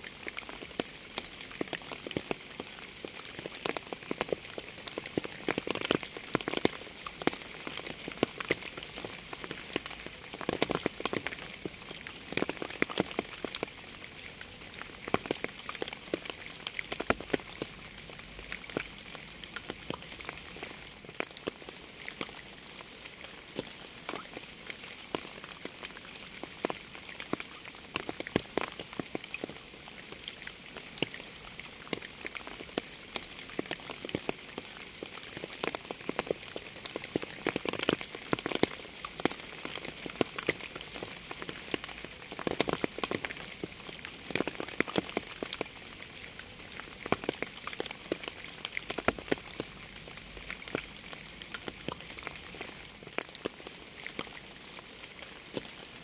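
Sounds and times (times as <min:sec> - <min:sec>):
raindrops striking close by: 0:00.0 - 0:56.0
steady rain: 0:00.0 - 0:56.0.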